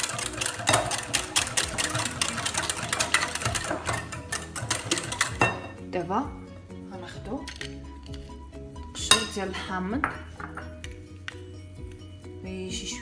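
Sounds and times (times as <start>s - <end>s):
batter sloshing: 0.0s - 5.6s
whisk clicking against glass bowl: 0.0s - 5.6s.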